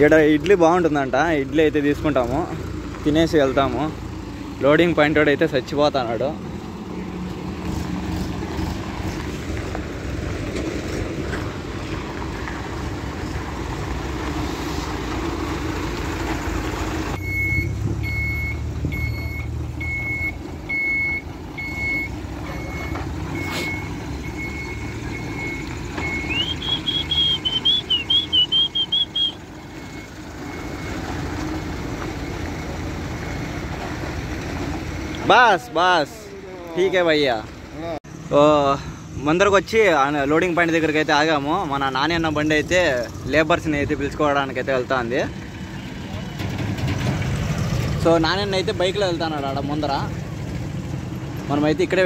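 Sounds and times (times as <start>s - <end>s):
diesel truck engine running: 0.0s - 52.0s
truck reversing alarm beeping: 17.1s - 34.1s.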